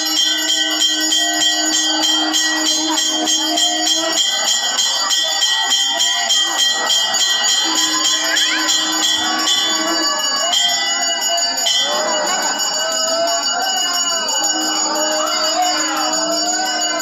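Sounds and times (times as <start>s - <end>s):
temple bells ringing rapidly: 0.0s - 17.0s.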